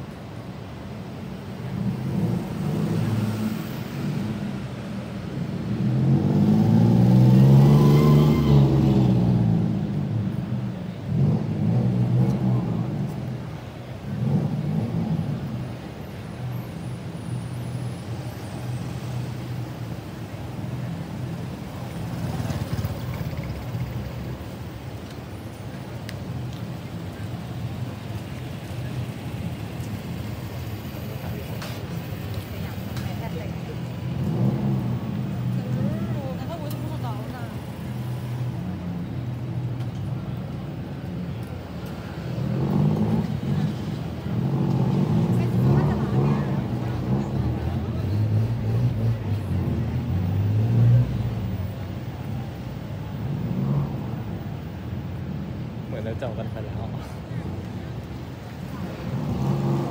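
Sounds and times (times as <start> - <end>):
road traffic engines: 0.0 - 59.9
motorcycle passing close: 58.7 - 59.9.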